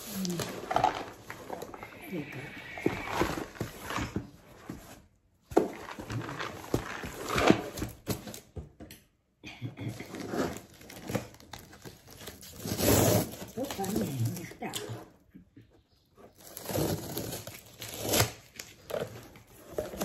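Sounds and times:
cardboard box rustling and scraping: 0:02.7 - 0:08.4.

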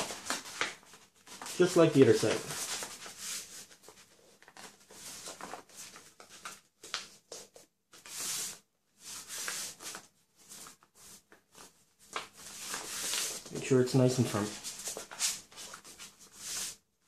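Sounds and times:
hands rubbing paper: 0:08.0 - 0:16.8.

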